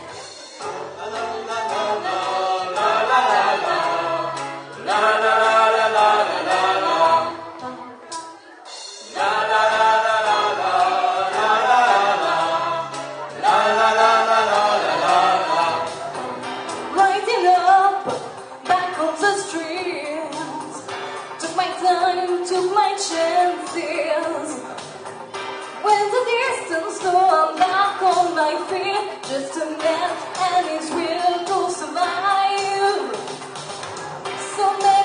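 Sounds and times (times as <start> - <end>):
people singing in harmony: 0.0 - 7.8, 9.1 - 17.1.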